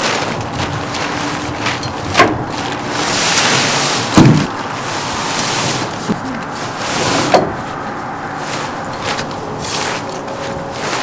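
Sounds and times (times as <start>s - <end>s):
tent fabric rustling and crinkling: 0.0s - 11.0s
heavy thump: 3.5s - 4.6s.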